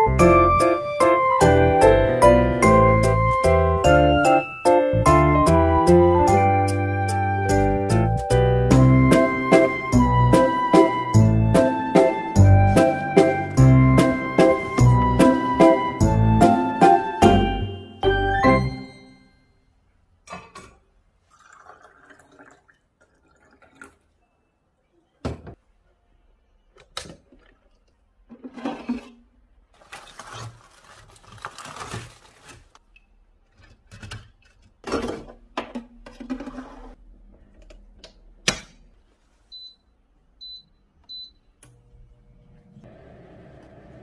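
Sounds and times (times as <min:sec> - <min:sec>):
plastic bag rustling: 0:29.7 - 0:32.8
air fryer fan hum: 0:41.7 - 0:44.0.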